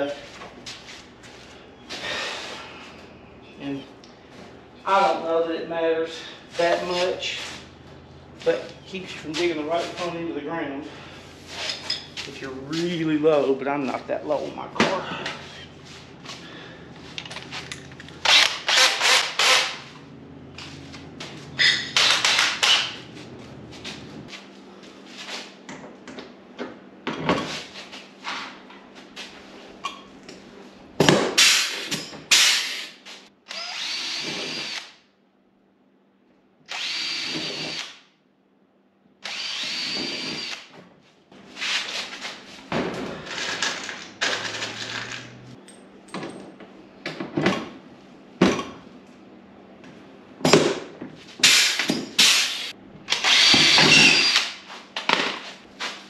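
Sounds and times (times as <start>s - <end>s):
cordless drill drilling plastic: 18.3s - 19.8s, 33.5s - 34.9s, 36.7s - 38.0s, 39.2s - 40.6s, 52.5s - 54.5s.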